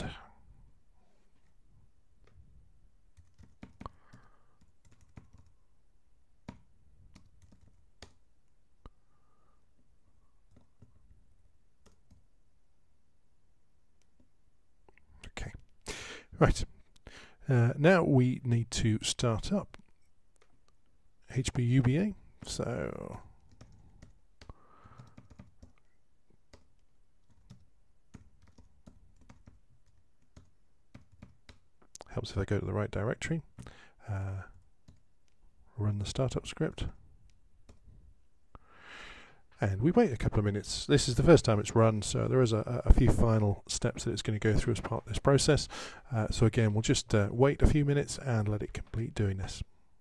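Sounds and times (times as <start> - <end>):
keystrokes on computer keyboard: 3.1 - 5.6, 6.4 - 8.6, 10.4 - 11.0, 11.8 - 12.3, 21.8 - 32.0, 34.5 - 35.4.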